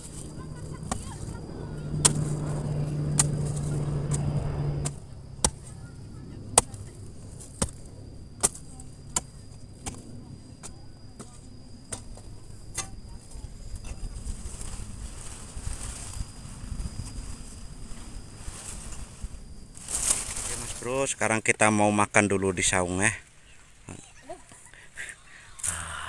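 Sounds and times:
steady low hum: 0:00.0 - 0:21.2
hoe chopping into dry soil: 0:02.0 - 0:05.7, 0:06.6 - 0:10.0.

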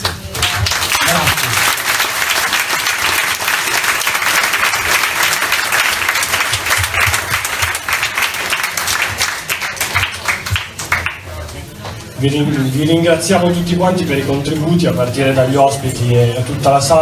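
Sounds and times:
crowd applauding: 0:00.0 - 0:12.2.

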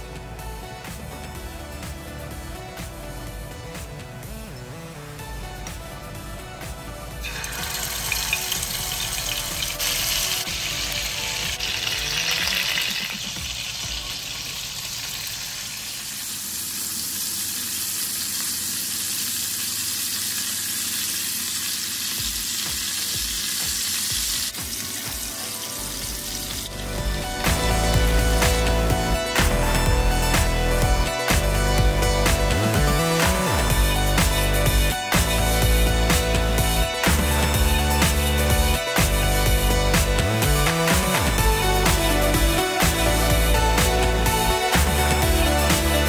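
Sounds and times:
chicken sizzling in oil: 0:07.2 - 0:27.1.

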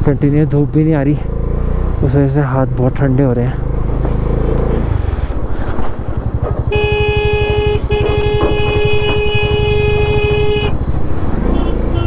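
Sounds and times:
motorcycle engine running: 0:00.0 - 0:12.0
vehicle horn long tone: 0:06.7 - 0:10.8, 0:11.5 - 0:12.0.

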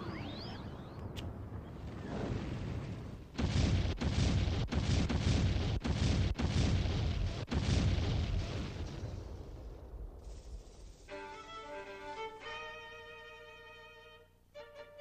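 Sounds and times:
roaring torch flames: 0:00.3 - 0:11.1.

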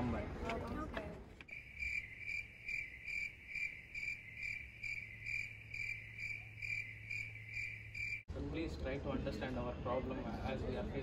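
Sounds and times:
cricket chirping: 0:01.5 - 0:08.3.

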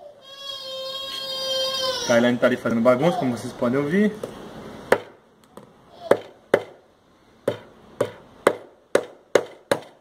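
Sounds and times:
hammer striking nails into wood: 0:04.9 - 0:05.2, 0:06.1 - 0:06.8, 0:07.4 - 0:10.0.

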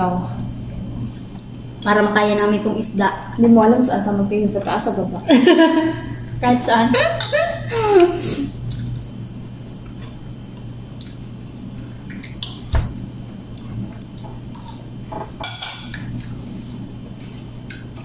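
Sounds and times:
steady low hum: 0:00.0 - 0:18.0
clinks on dishes: 0:15.3 - 0:16.1.

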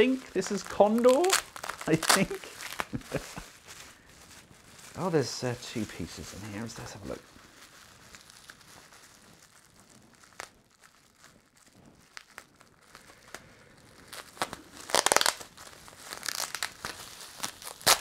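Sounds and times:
plastic bag crinkling: 0:00.0 - 0:18.0
small clicks and rustles: 0:07.2 - 0:18.0.

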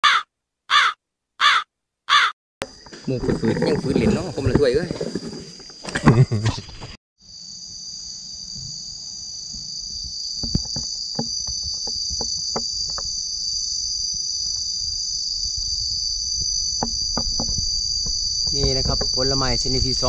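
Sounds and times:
insects chorus: 0:02.6 - 0:20.0.

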